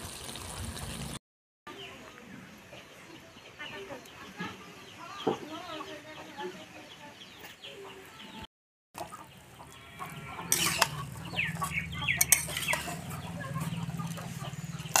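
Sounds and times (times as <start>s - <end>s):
chickens clucking: 4.0s - 15.0s
spatula scraping metal pan: 9.9s - 13.7s.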